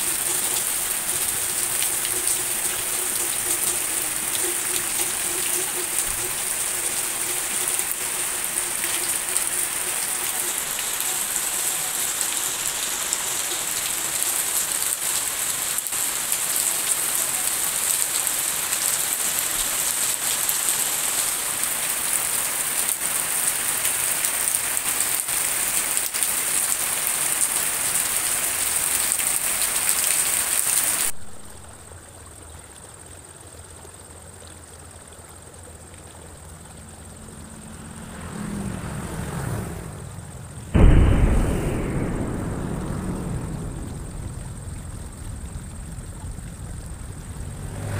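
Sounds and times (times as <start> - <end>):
heavy rain pouring: 0.0 - 31.8, 35.6 - 47.9
low steady hum: 40.2 - 47.8.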